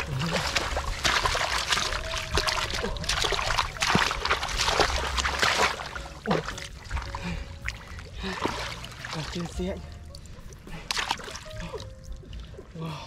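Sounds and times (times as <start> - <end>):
wet mud squelching and splashing: 0.0 - 12.9.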